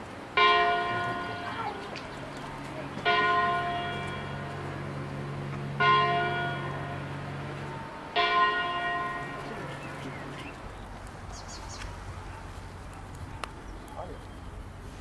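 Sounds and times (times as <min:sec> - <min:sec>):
church bell tolling: 0:00.4 - 0:01.9, 0:02.9 - 0:10.0.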